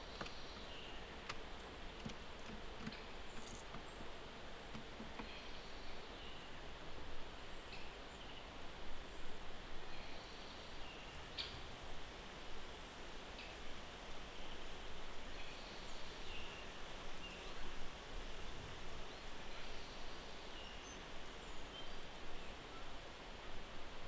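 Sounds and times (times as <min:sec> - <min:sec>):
steady forest hiss: 0:00.0 - 0:24.0
small clicks and taps: 0:02.0 - 0:03.9.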